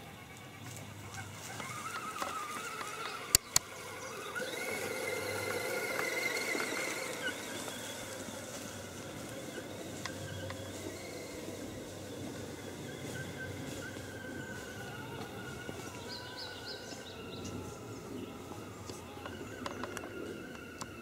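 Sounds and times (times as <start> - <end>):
electric motor whining: 0.0 - 21.0
sharp clicks: 1.9 - 3.8.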